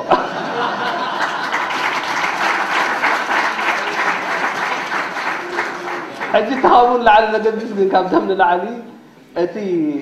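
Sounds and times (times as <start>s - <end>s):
audience applauding: 0.3s - 7.3s.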